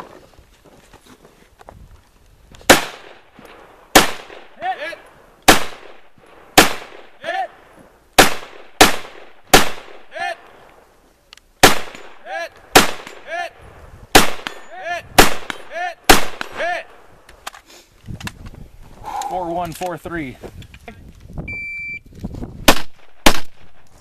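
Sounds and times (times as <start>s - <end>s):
rifle shots: 2.7s - 4.6s, 5.4s - 7.2s, 8.2s - 10.1s, 11.6s - 13.3s, 14.1s - 16.7s, 22.6s - 23.8s.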